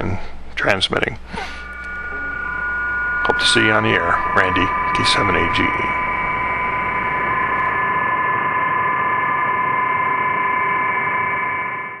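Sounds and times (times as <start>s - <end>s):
radio band hiss: 0.0s - 7.8s
steady data signal tones: 1.2s - 12.0s.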